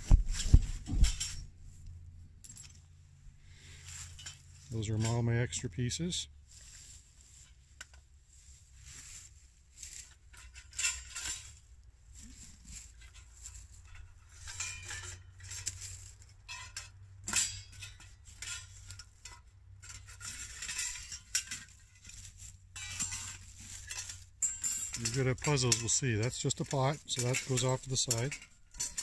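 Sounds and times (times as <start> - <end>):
metal parts clinking: 0.4 - 1.5, 2.4 - 3.0, 3.6 - 5.6, 10.0 - 11.6, 12.8 - 29.0.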